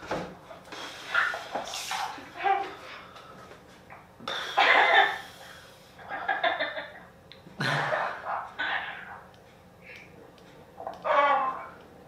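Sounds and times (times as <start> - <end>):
man coughing: 7.6 - 8.2.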